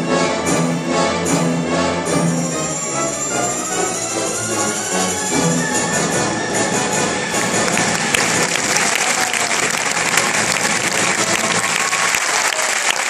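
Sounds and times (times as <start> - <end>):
audience applauding: 7.3 - 13.0.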